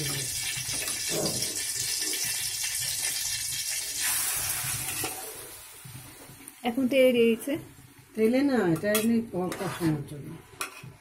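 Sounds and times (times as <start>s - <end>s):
oil hissing in pan: 0.0s - 6.3s
food frying in hot oil: 0.0s - 6.8s.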